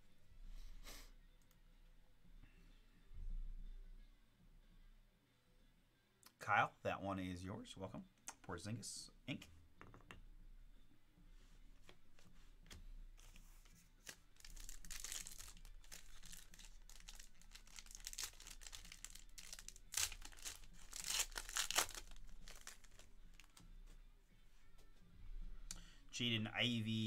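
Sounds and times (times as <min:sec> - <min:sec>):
foil wrapper crinkling: 0:14.0 - 0:23.6
foil wrapper ripping: 0:14.0 - 0:23.6.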